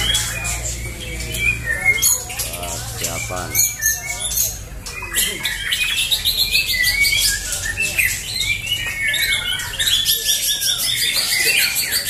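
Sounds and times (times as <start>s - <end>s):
birds singing whistled phrases: 0.0s - 12.0s.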